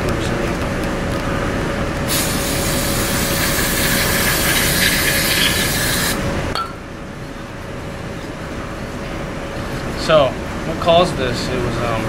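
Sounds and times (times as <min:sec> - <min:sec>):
aerosol spray hissing into metal: 0:02.1 - 0:06.2.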